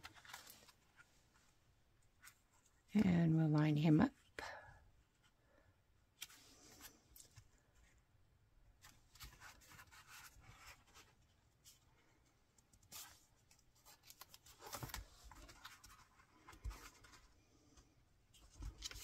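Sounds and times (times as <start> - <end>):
card stock rustling and rubbing: 8.8 - 11.8.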